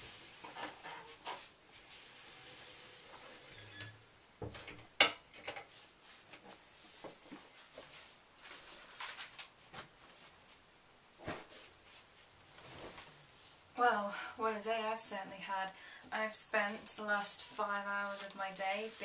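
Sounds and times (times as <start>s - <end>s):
rustling: 5.6s - 10.6s, 11.2s - 13.7s
soft footsteps: 5.7s - 13.6s.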